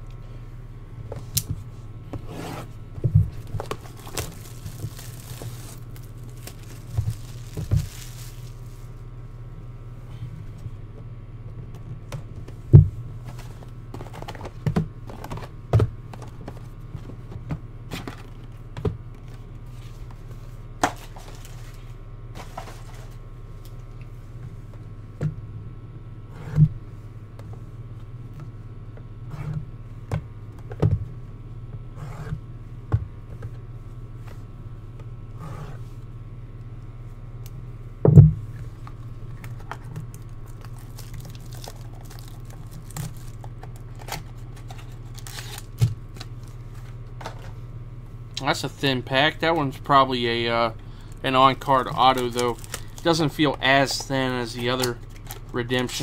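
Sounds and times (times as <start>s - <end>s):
steady low hum: 0.0s - 56.0s
plastic shrink-wrap crinkling: 3.3s - 9.0s, 20.9s - 23.2s, 39.5s - 47.0s, 51.1s - 56.0s.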